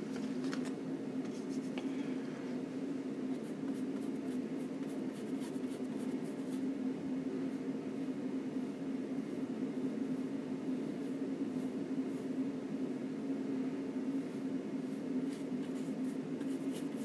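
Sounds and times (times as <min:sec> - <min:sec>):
steady low hum: 0:00.0 - 0:17.0
brush strokes on canvas: 0:07.4 - 0:12.4.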